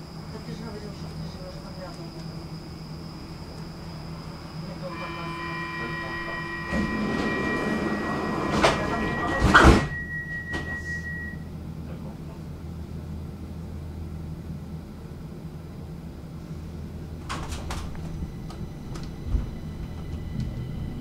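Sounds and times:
steady electronic tone: 4.0 - 11.6
sliding doors rushing: 6.2 - 10.8, 17.1 - 21.0.

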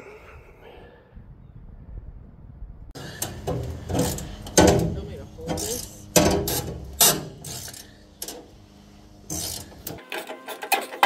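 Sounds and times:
ratcheting wrench clicking: 5.5 - 8.5, 9.3 - 10.9.

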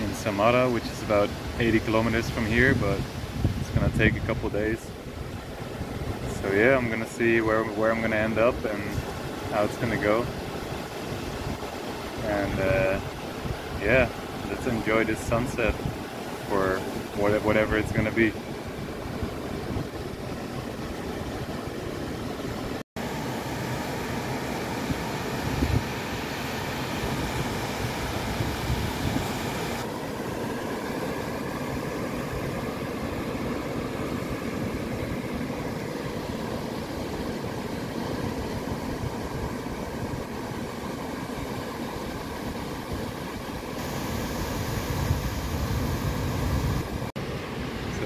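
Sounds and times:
surf washing up a beach: 0.0 - 48.0.

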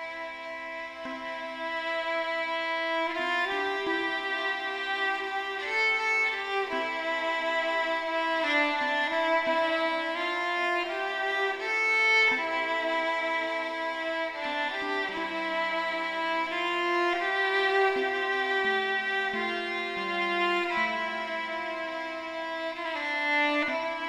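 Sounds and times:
solo violin slow melody: 0.0 - 24.0.

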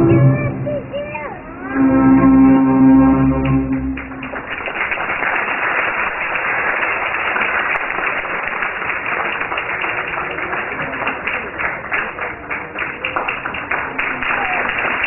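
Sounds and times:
audience applauding: 3.0 - 15.0.

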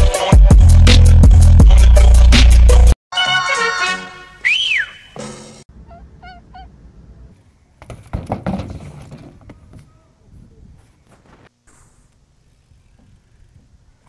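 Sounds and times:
faint squeaky chirps: 5.8 - 7.8
bike crashing onto concrete: 7.8 - 9.9.

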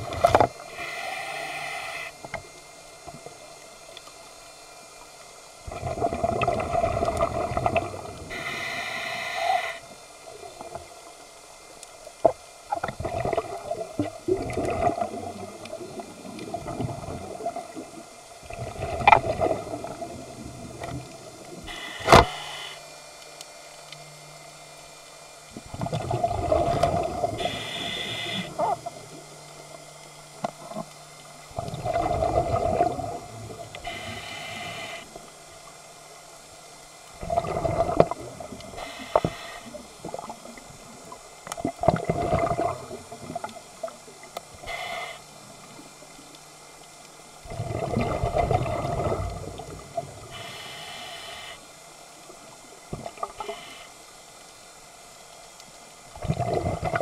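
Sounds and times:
regulator inhale hiss: 0.6 - 2.4, 8.2 - 10.0, 21.5 - 22.9, 27.3 - 28.8, 33.1 - 35.3, 38.7 - 40.6, 44.5 - 45.8, 50.2 - 52.0, 53.3 - 54.4
gurgling exhaled bubbles: 5.6 - 8.4, 12.7 - 21.8, 25.5 - 29.2, 31.5 - 33.7, 37.2 - 38.8, 39.7 - 44.0, 47.4 - 50.4, 56.2 - 57.0.

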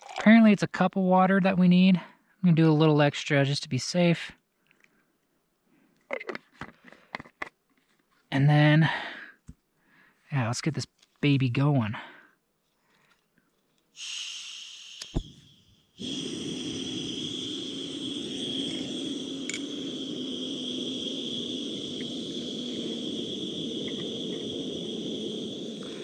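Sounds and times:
gas hissing: 14.0 - 26.0
gas burner running: 16.0 - 26.0.

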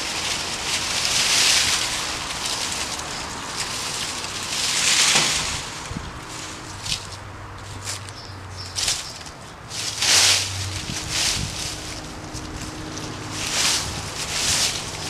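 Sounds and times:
dry branches tossed into cart: 0.0 - 15.0
rake scraping dry leaves: 0.0 - 15.0.

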